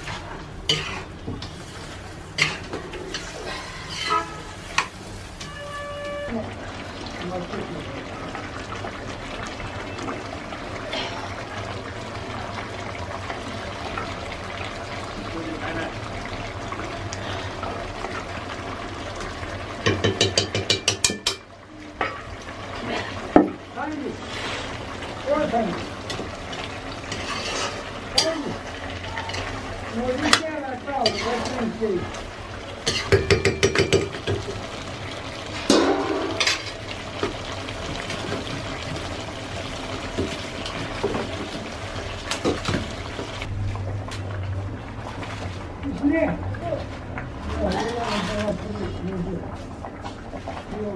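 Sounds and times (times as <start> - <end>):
curry sizzling: 0.0 - 50.9
water hissing in hot pan: 22.4 - 43.5.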